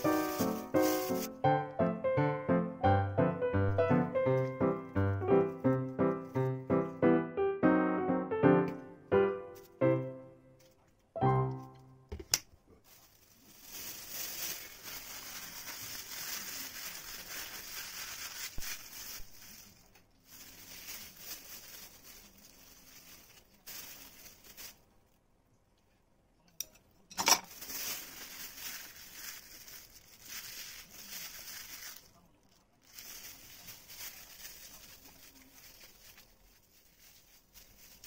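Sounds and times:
plastic bag crinkling: 0.0s - 1.8s, 3.7s - 7.0s, 9.5s - 25.3s, 27.2s - 38.0s.

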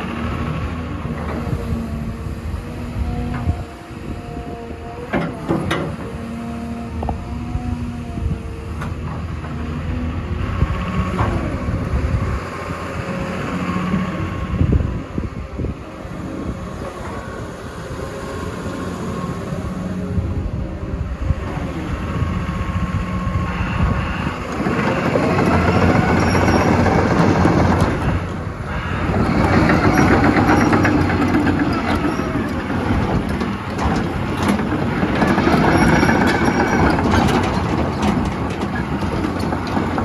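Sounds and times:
excavator diesel engine under load: 0.0s - 40.0s
steel tracks clanking: 1.2s - 7.2s, 23.2s - 40.0s.

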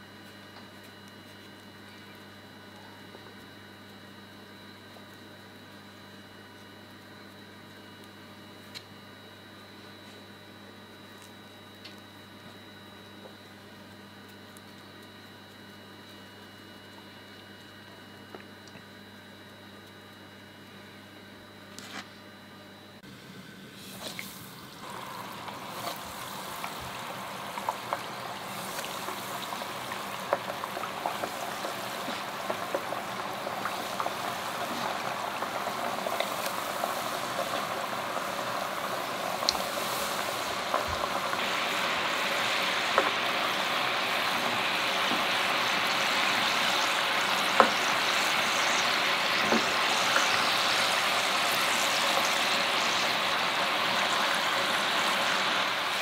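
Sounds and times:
food sizzling in hot oil: 23.8s - 56.0s.

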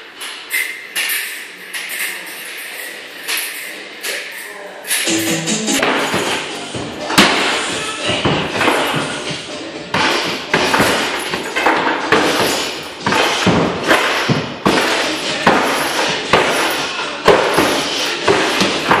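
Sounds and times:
music with steady beat: 5.1s - 10.6s
punches hitting punching bag: 9.9s - 19.0s.

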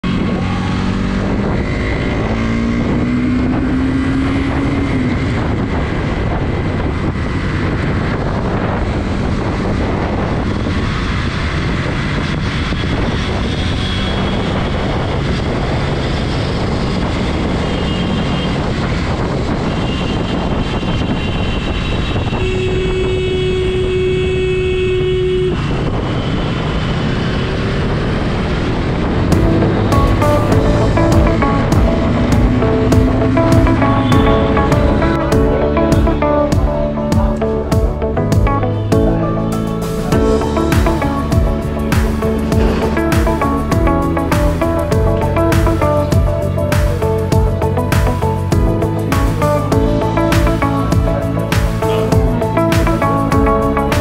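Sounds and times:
vehicle and road noise: 0.0s - 54.0s
rising tone: 28.6s - 54.0s
steady tone: 29.2s - 54.0s.

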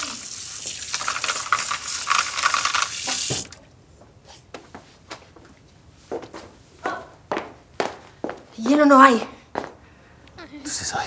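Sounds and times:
faucet water filling a jug: 0.0s - 3.6s.

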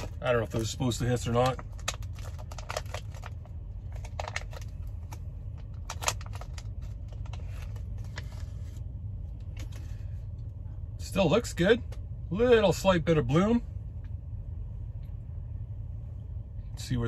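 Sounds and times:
packet crinkling and rustling: 0.0s - 8.8s
steady low hum: 0.0s - 17.0s.

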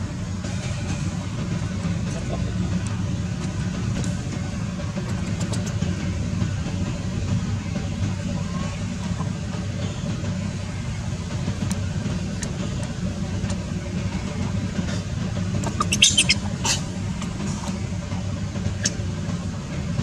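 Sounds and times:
infant monkey squeaking: 15.6s - 16.9s.

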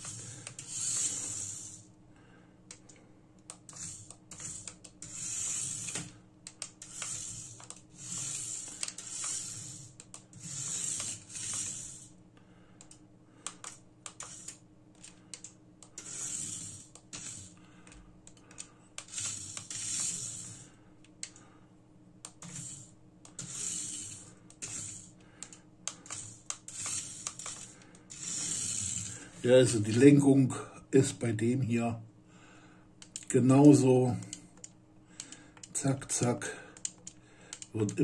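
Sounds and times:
small electric motor whirring: 0.0s - 1.9s, 3.7s - 6.2s, 6.8s - 12.1s, 14.1s - 14.6s, 16.0s - 17.6s, 19.0s - 20.7s, 22.4s - 25.1s, 25.9s - 29.5s.

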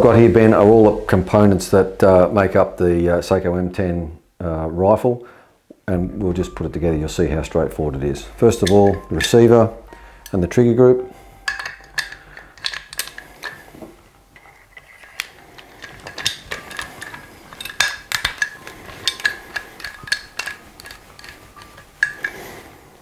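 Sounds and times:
small metallic clicks and clinks: 14.4s - 22.4s.

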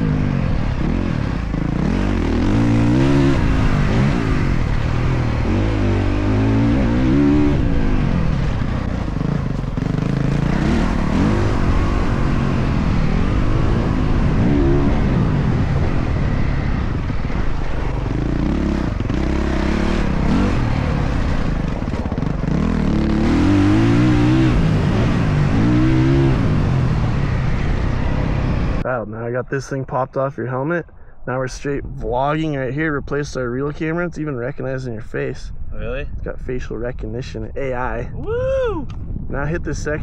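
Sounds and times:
dirt bike engine revving: 0.0s - 28.8s.

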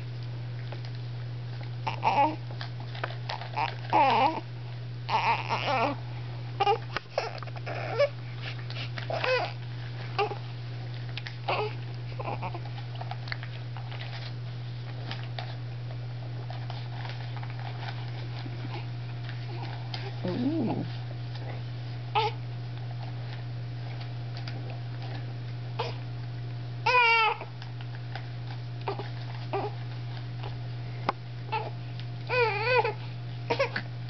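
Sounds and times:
steady low hum: 0.0s - 34.0s
baby whimpering and babbling: 1.8s - 2.4s, 3.6s - 4.4s, 5.1s - 6.0s, 6.6s - 8.1s, 9.2s - 9.6s, 11.5s - 12.6s, 20.1s - 20.9s, 26.9s - 27.4s.

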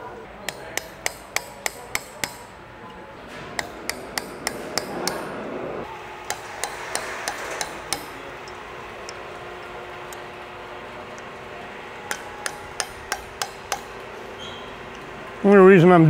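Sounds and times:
hammer tapping metal wrench: 0.4s - 2.5s, 3.6s - 5.3s, 6.3s - 9.2s, 12.1s - 14.0s.

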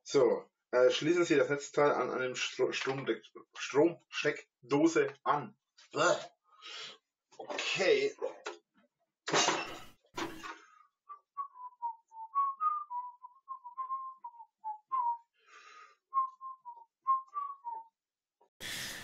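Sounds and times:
man whistling a tune: 11.0s - 15.3s, 16.0s - 18.0s.

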